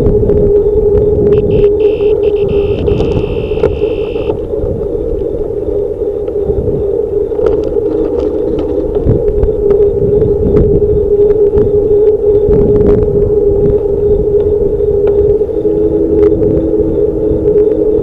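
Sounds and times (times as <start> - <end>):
steady hum: 0.0 - 18.0
wind rumbling on microphone: 0.0 - 18.0
high steady tone: 0.5 - 7.4, 9.1 - 18.0
bike rattling over bumps: 7.3 - 9.4.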